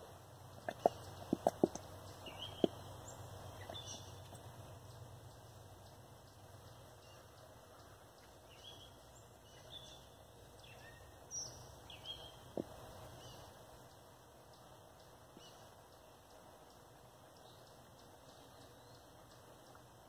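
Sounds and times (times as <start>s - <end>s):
faint bird chirps: 0.5s - 20.0s.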